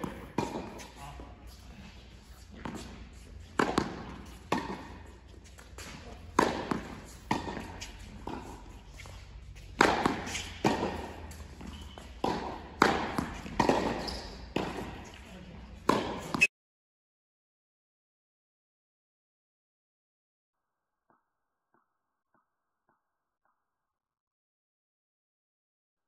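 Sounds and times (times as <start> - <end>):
tennis balls struck by racquets: 0.0 - 16.5.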